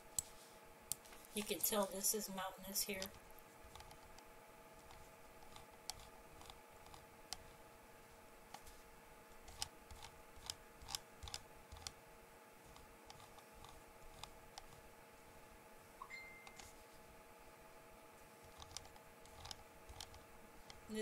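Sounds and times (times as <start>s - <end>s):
faint hum: 0.0s - 21.0s
computer controls clicking: 2.9s - 4.3s, 4.9s - 7.5s, 9.5s - 12.0s, 12.7s - 14.8s, 16.0s - 16.7s, 18.4s - 21.0s.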